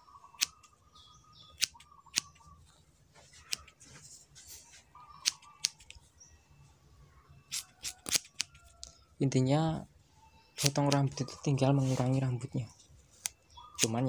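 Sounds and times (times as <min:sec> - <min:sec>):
scissors snipping hair: 0:00.4 - 0:00.6, 0:01.6 - 0:02.3, 0:03.4 - 0:03.8, 0:05.2 - 0:06.0, 0:07.5 - 0:08.9, 0:10.6 - 0:11.1, 0:13.2 - 0:14.0.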